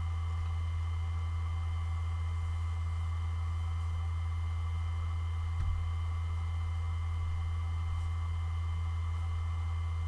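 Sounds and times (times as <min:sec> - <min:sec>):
hard drive humming: 0:00.0 - 0:10.0.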